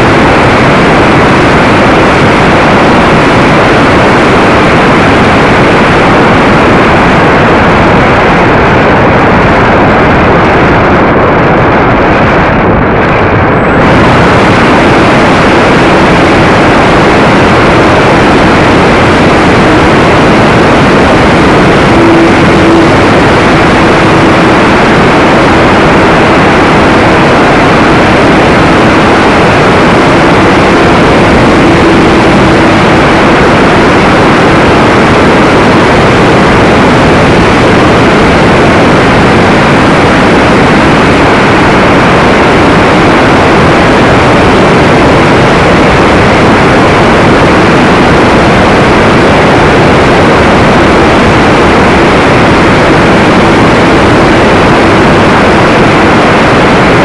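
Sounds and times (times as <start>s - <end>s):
airplane engine and propeller: 0.0s - 57.0s
faint steady hum: 0.0s - 57.0s.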